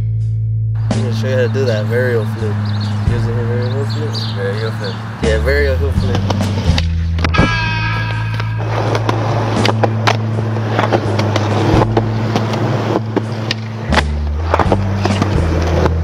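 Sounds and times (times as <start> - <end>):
music with sustained bass: 0.0 - 16.0
skateboard rolling on concrete: 1.8 - 7.4, 8.0 - 16.0
skateboard clacks: 6.0 - 7.4, 8.1 - 16.0.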